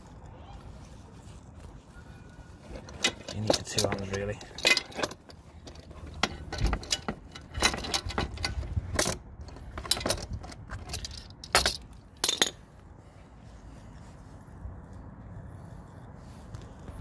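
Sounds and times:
metal tools clinking: 0:02.6 - 0:12.7.

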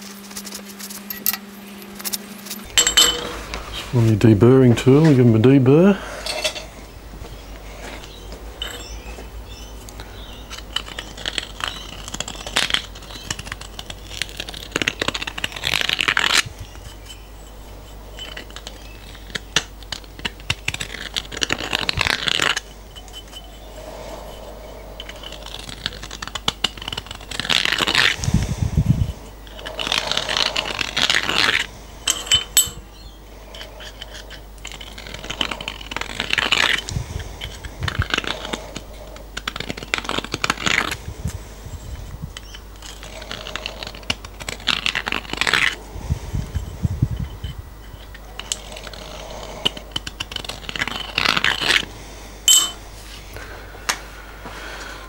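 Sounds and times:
deburring tool scraping metal: 0:00.0 - 0:06.8, 0:07.9 - 0:28.2, 0:29.0 - 0:38.6
metal clinks: 0:02.0 - 0:03.8, 0:06.2 - 0:06.7, 0:08.0 - 0:12.2, 0:32.0 - 0:32.9, 0:52.5 - 0:52.9.

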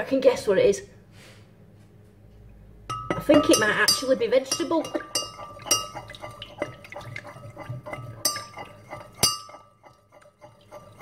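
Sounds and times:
spoon clinking against glass jug: 0:02.9 - 0:11.0.

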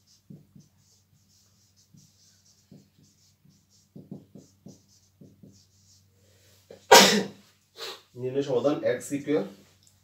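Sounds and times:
marker writing on whiteboard: 0:00.0 - 0:06.1.

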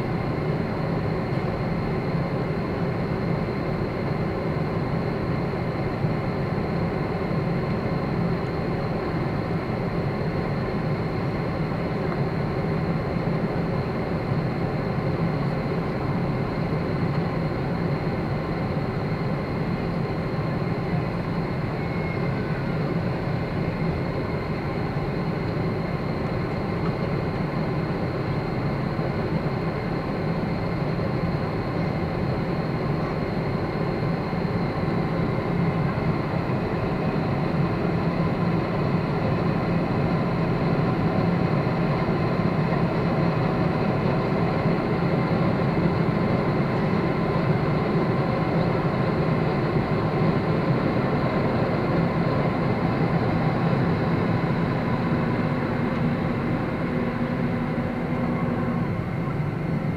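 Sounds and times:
faint high whine: 0:00.0 - 0:59.9
jet engine rushing in cabin: 0:00.0 - 0:59.9.

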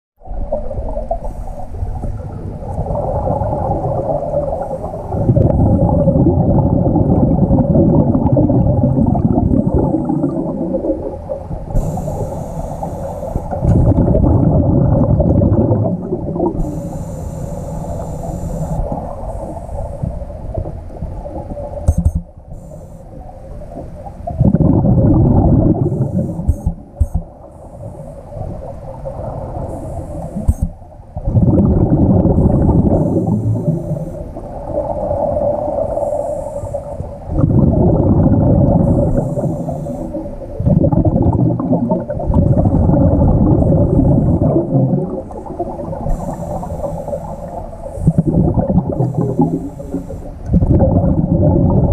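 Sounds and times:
underwater hum: 0:00.2 - 0:51.9
bubbling exhaled air: 0:00.6 - 0:20.7, 0:24.3 - 0:51.9
hissing inhalations: 0:11.8 - 0:13.6, 0:16.6 - 0:20.0, 0:35.9 - 0:37.1, 0:38.8 - 0:40.3, 0:46.0 - 0:50.5.

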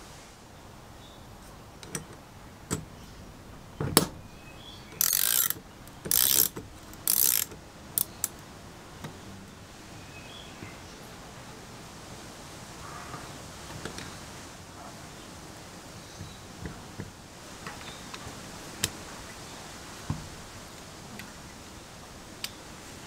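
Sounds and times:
ratchet wrench clicking: 0:04.9 - 0:08.4.

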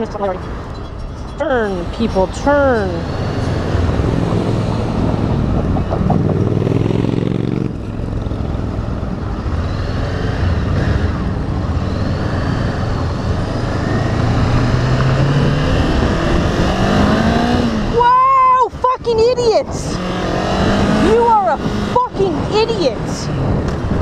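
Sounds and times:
road and traffic noise: 0:00.0 - 0:24.0
motorcycle engine accelerating: 0:02.6 - 0:18.0, 0:19.8 - 0:22.5.

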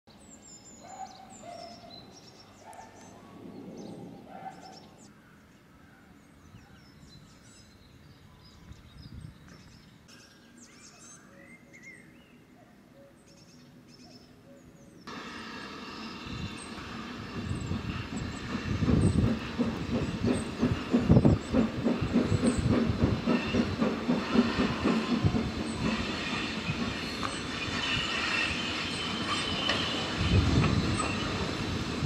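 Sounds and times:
songbirds chirping and trilling: 0:00.1 - 0:15.2.

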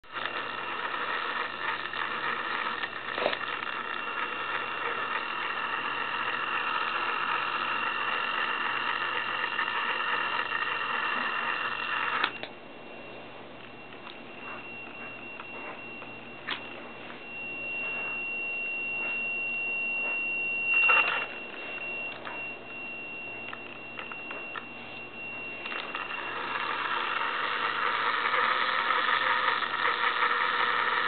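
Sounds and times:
toy truck electric motor whining: 0:00.0 - 0:12.4, 0:25.6 - 0:31.0.

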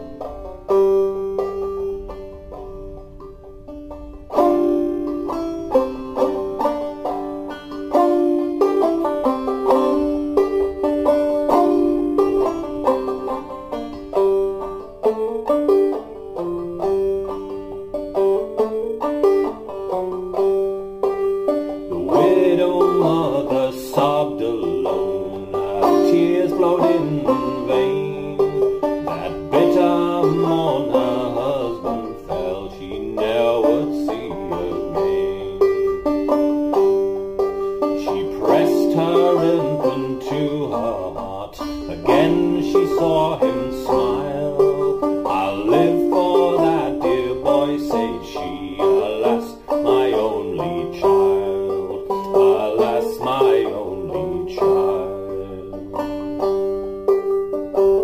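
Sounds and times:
banjo playing: 0:00.0 - 0:58.0.

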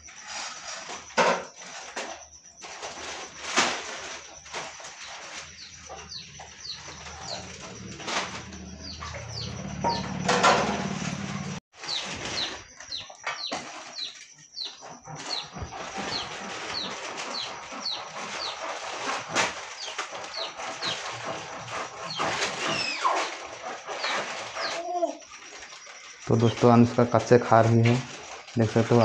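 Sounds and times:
bird chirping: 0:05.0 - 0:10.4, 0:11.8 - 0:23.3.

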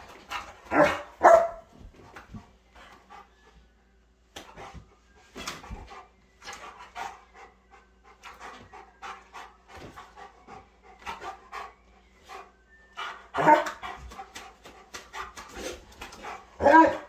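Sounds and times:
dog panting: 0:04.6 - 0:16.6.

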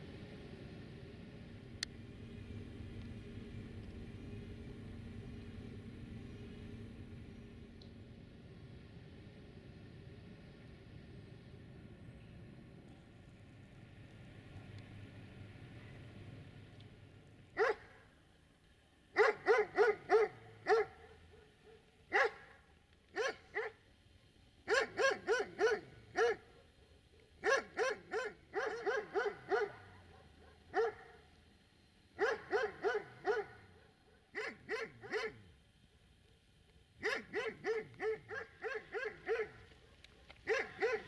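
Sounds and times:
dog barking: 0:17.6 - 0:18.0, 0:19.2 - 0:22.6, 0:23.2 - 0:23.8, 0:24.7 - 0:26.7, 0:27.4 - 0:31.2, 0:32.2 - 0:35.5, 0:37.0 - 0:41.0.

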